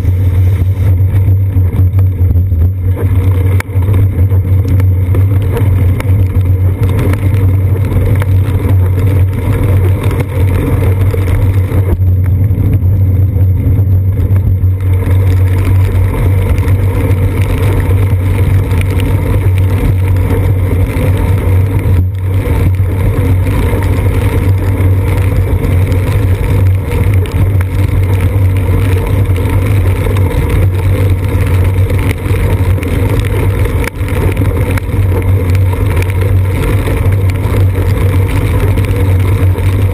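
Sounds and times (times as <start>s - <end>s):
tyres hissing on wet pavement: 0.0s - 2.2s, 2.8s - 39.9s
wind and road rumble: 0.0s - 39.9s.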